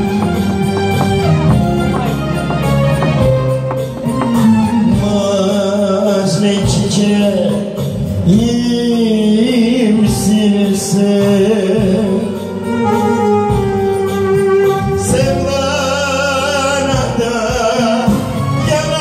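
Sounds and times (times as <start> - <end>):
electronic keyboard music: 0.0 - 7.8, 10.4 - 18.7.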